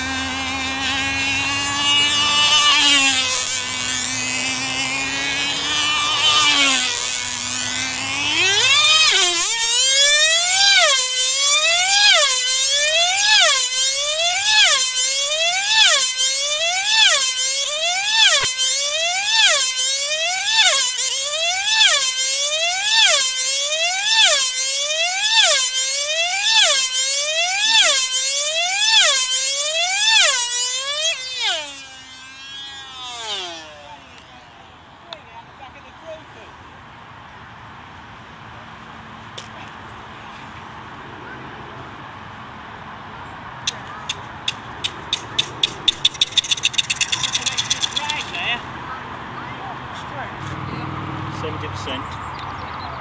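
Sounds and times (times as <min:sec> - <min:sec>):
model aircraft engine whine: 0:00.0 - 0:53.0.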